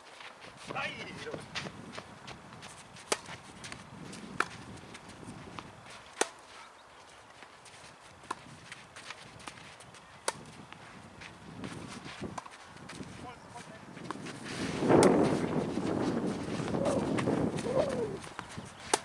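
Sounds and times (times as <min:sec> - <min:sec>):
tennis ball bouncing on clay: 0:00.7 - 0:06.4, 0:08.2 - 0:10.8, 0:11.6 - 0:14.4, 0:15.0 - 0:19.0
tennis ball struck by racket: 0:03.0 - 0:03.8, 0:04.4 - 0:04.6, 0:06.2 - 0:06.5, 0:10.2 - 0:10.5, 0:15.0 - 0:15.4, 0:18.3 - 0:19.0.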